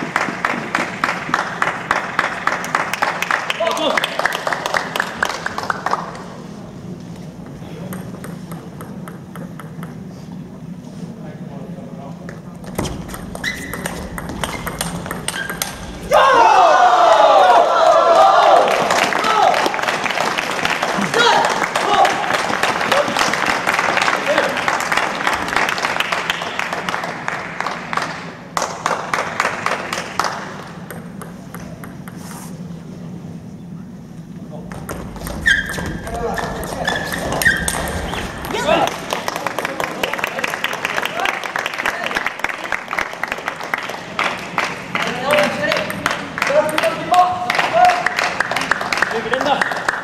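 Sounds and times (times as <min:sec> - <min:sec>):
hand clapping: 0:00.0 - 0:06.2, 0:38.6 - 0:50.0
people clapping: 0:00.0 - 0:06.5, 0:15.6 - 0:30.8, 0:36.2 - 0:50.0
low hum of hall: 0:00.0 - 0:50.0.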